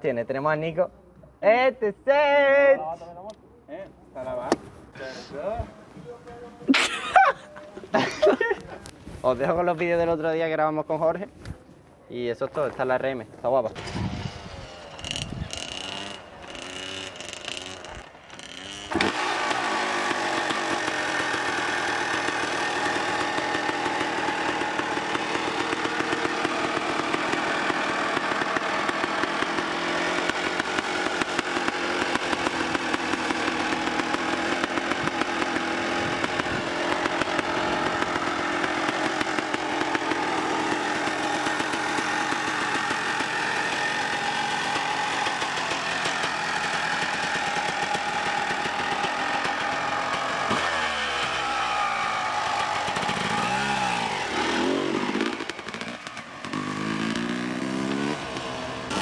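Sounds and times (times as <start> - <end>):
engine kick-started: 13.8 - 59.0
two-stroke engine running: 13.8 - 59.0.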